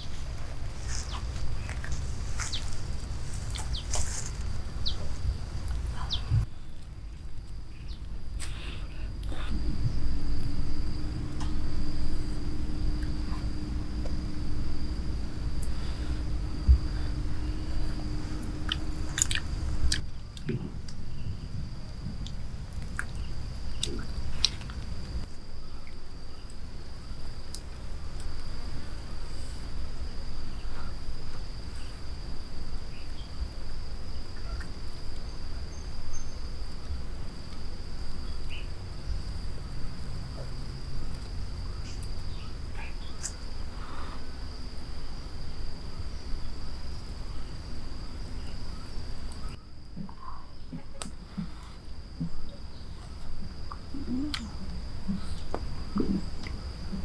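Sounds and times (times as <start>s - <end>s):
low rumble: 0.0s - 25.6s
insects chirring: 0.0s - 57.0s.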